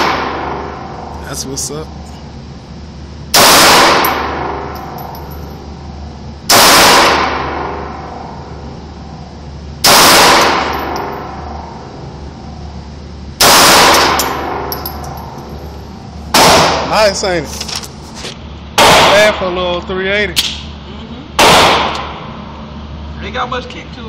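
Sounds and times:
pistol shots echoing indoors: 3.3s - 4.9s, 6.5s - 8.0s, 9.8s - 11.4s, 13.4s - 15.2s, 16.3s - 16.9s, 18.8s - 19.2s, 21.4s - 22.2s.

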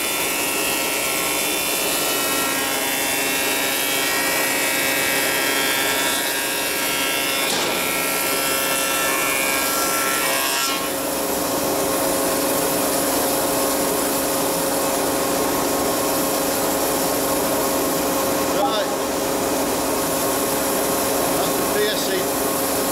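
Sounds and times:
planer cutting wood with whine: 0.0s - 11.5s.

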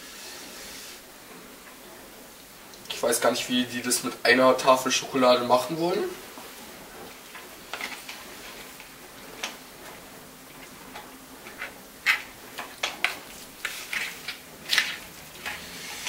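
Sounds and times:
fork scraping a bowl: 11.4s - 12.4s.

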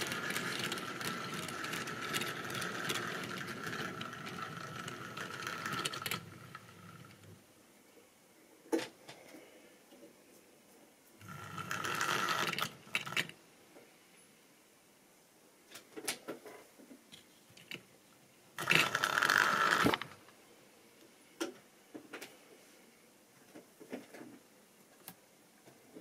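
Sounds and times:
wheels clicking over rail joints: 0.0s - 7.3s, 18.6s - 20.2s
model train motor whirring: 0.0s - 7.4s, 11.2s - 13.3s, 18.6s - 20.2s.

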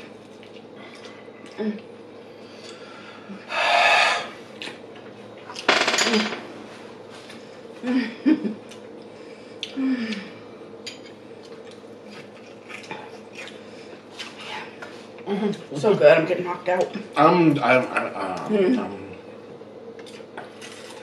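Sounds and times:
person humming mmm: 1.5s - 1.9s, 9.6s - 10.4s
chewing crispy fried chicken: 11.4s - 14.5s.

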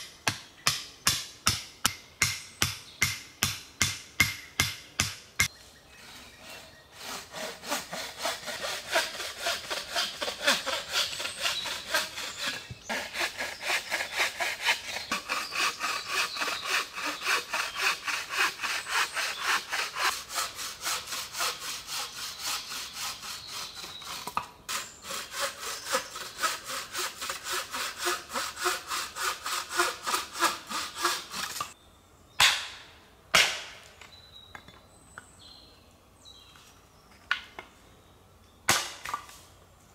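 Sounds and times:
hand saw cutting wood: 6.4s - 31.8s.

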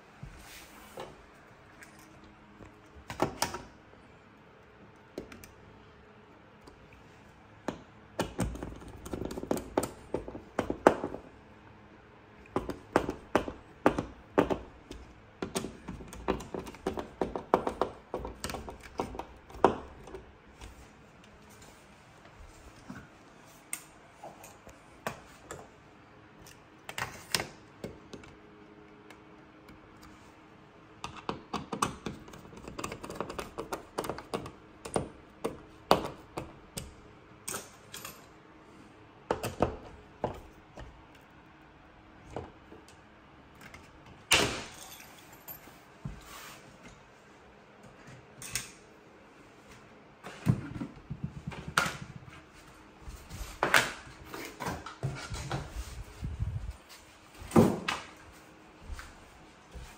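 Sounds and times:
clicks and taps of hard parts: 7.6s - 11.3s, 12.4s - 20.7s, 31.0s - 38.2s.

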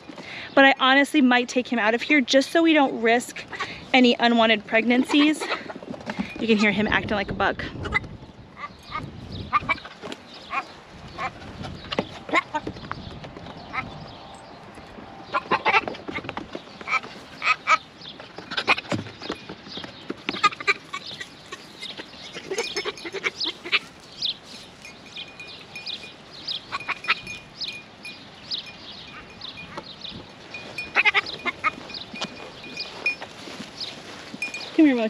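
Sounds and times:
young goat rutting noises: 0.0s - 35.0s
goats calling: 3.3s - 3.9s, 7.8s - 35.0s.

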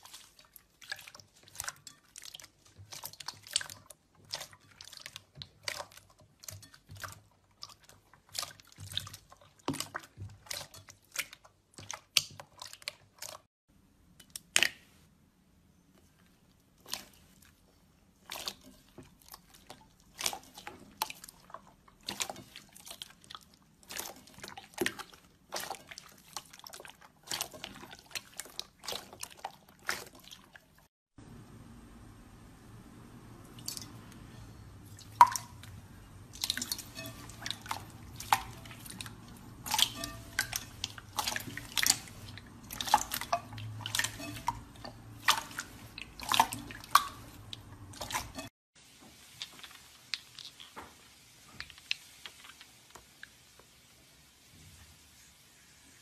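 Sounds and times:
hands squishing slime: 0.0s - 13.5s, 16.7s - 30.8s, 34.9s - 48.5s.

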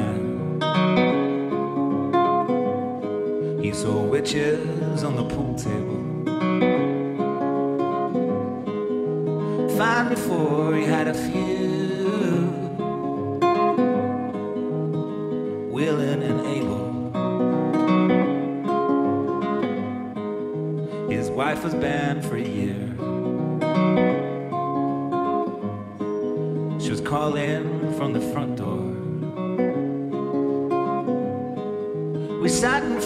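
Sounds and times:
acoustic guitar melody: 0.0s - 33.0s
strummed guitar flourish: 0.0s - 33.0s.

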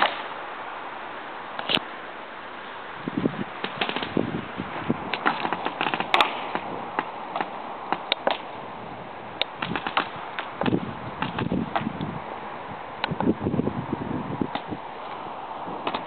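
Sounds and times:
paintball guns firing: 0.0s - 0.3s, 3.6s - 4.2s, 5.1s - 8.5s, 9.4s - 11.9s
outdoor background noise: 0.0s - 16.0s.

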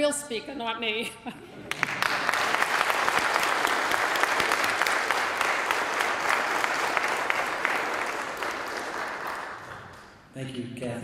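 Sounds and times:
audience applauding: 1.6s - 10.2s.

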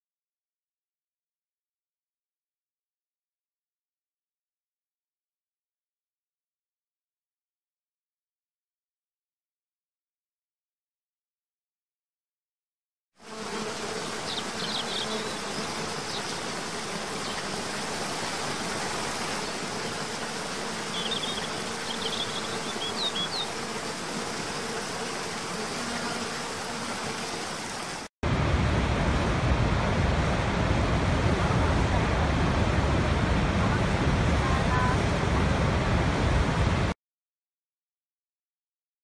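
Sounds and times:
birds chirping: 13.8s - 23.8s.

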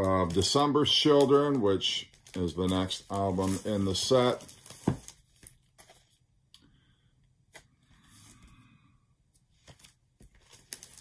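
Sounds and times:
cardboard record sleeves handled: 2.2s - 6.2s.

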